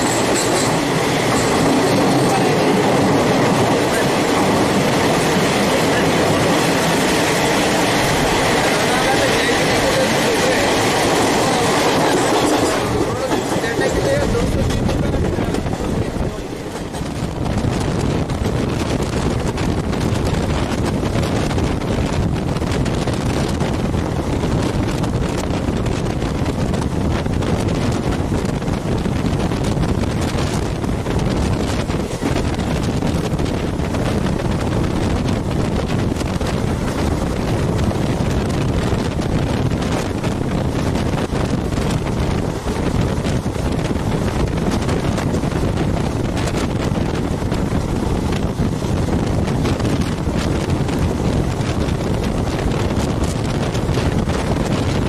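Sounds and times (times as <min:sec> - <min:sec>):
train running noise: 0:00.0 - 0:55.0
wind buffeting microphone: 0:00.0 - 0:55.0.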